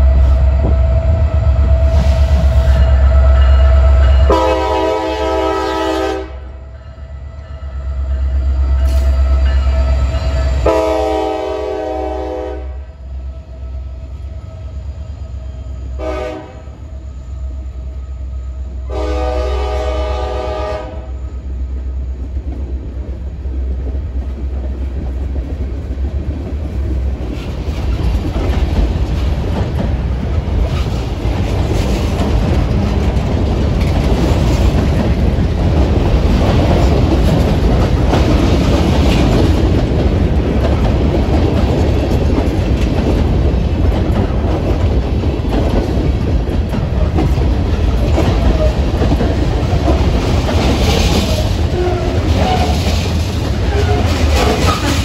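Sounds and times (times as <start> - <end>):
locomotive engine rumbling: 0.0 - 55.0
locomotive air horn: 4.3 - 6.6, 10.6 - 12.9, 15.8 - 16.8, 18.8 - 21.2
train wheels clattering on rails: 21.4 - 55.0.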